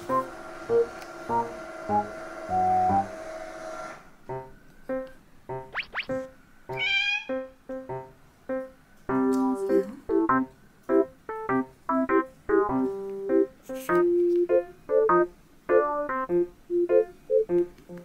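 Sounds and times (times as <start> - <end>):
light piano music: 0.0 - 3.4, 4.2 - 18.0
cat meowing: 6.7 - 7.5.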